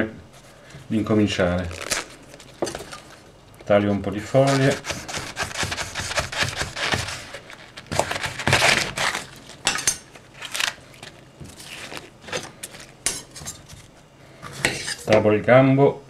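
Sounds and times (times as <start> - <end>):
knife crunching artichoke leaves: 1.5 - 3.3, 4.2 - 13.4.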